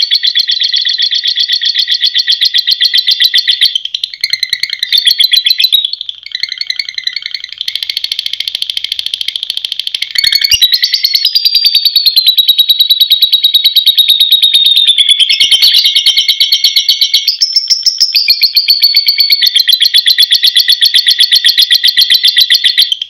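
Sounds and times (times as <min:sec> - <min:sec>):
bird chattering trill: 0:00.0 - 0:23.0.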